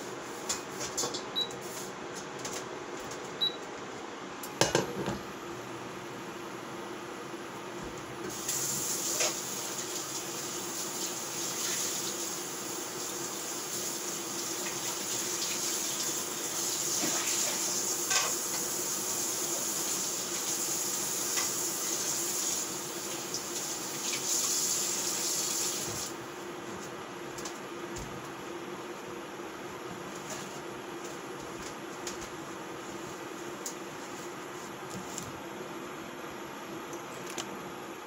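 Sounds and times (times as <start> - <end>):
kitchen tap running: 8.3 - 26.2.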